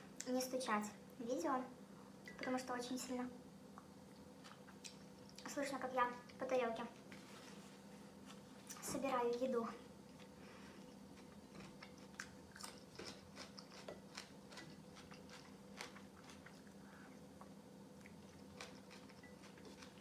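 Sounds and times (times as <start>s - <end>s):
faint steady hum: 0.0s - 20.0s
soft chewing: 3.7s - 8.8s, 10.0s - 20.0s.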